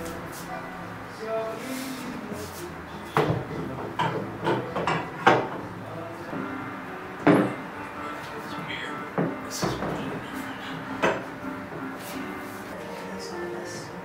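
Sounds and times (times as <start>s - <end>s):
wooden panels knocking: 11.0s - 11.3s.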